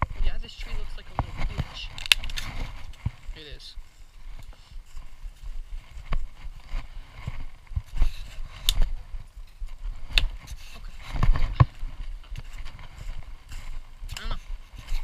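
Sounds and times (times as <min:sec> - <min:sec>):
footsteps crunching through dry leaves: 0:00.0 - 0:15.0
sharp snaps and knocks: 0:01.9 - 0:03.2.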